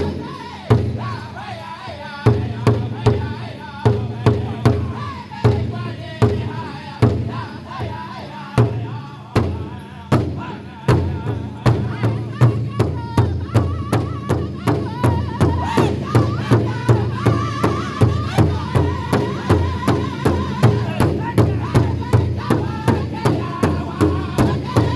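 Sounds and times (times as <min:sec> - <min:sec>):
group singing high-pitched: 0:00.0 - 0:24.9
large hide drum beating: 0:08.6 - 0:24.9.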